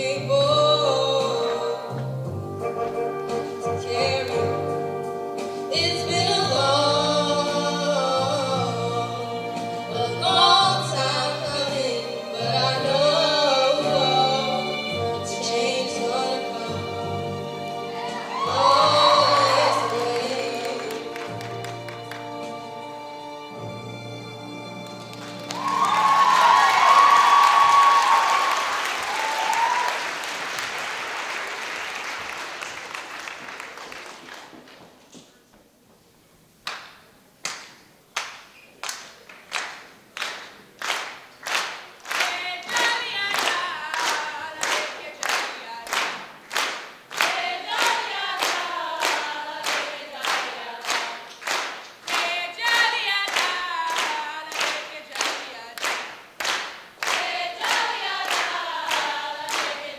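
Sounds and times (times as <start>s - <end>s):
people singing unaccompanied: 5.9s - 21.4s, 47.2s - 51.3s, 52.1s - 55.8s, 57.0s - 59.9s
applause: 25.1s - 34.9s, 37.5s - 59.9s
rhythmic hand claps: 36.7s - 59.9s.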